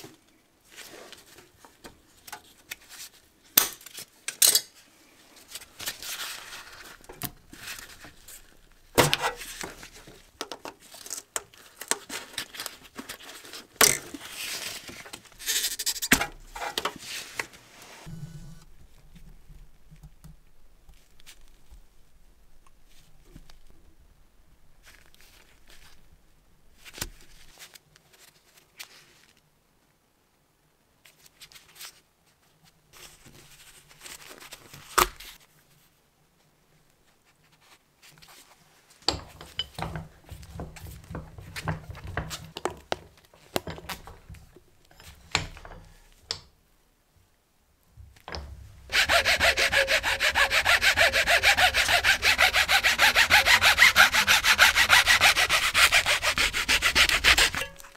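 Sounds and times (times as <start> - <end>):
plastic parts knocking and rubbing: 39.2 - 45.9, 48.2 - 57.9
hacksaw cutting plastic: 48.9 - 57.9.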